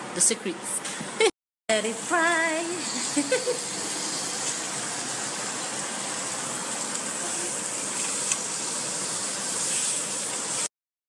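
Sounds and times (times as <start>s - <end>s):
steak sizzling in a frying pan: 2.5s - 10.7s.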